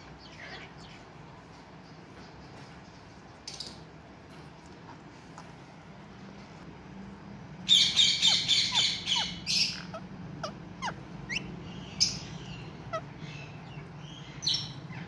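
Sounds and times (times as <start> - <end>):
parakeets squawking: 0.0 - 1.1, 7.7 - 15.0.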